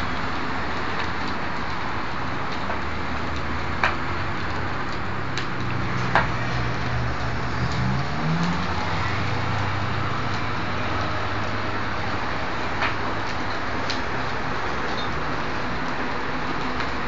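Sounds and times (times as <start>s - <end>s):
large fire burning: 0.0s - 17.0s
fire pops: 2.5s - 8.7s
low engine hum: 4.4s - 11.6s.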